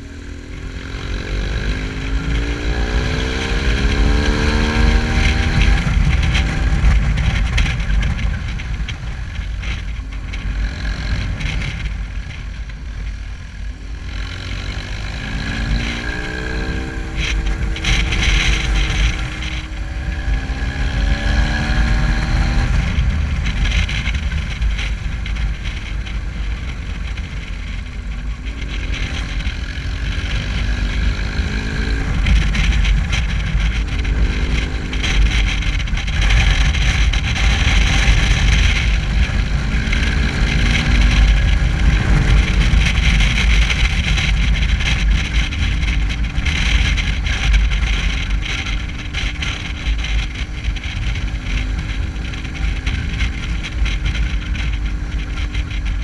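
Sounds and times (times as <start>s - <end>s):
motorcycle engine revving: 0.0s - 56.0s
wind noise on microphone: 0.0s - 56.0s.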